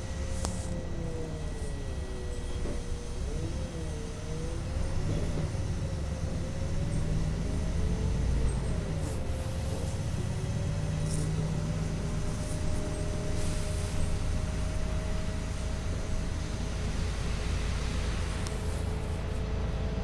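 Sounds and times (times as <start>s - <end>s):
bus engine and road rumble: 0.0s - 20.0s
brief air hisses: 13.4s - 14.1s.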